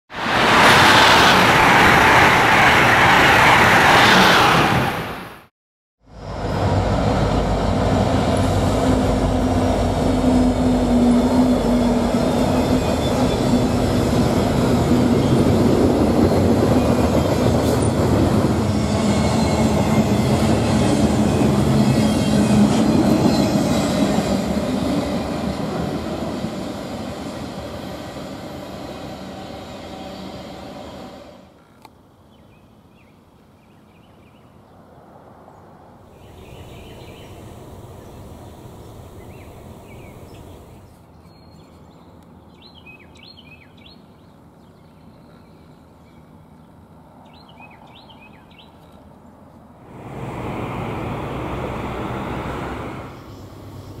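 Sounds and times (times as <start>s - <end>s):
freight cars rumbling past: 0.1s - 5.5s, 6.1s - 31.4s, 34.9s - 41.0s, 49.8s - 54.0s
diesel locomotives passing: 0.1s - 31.6s, 34.7s - 41.1s, 49.6s - 54.0s.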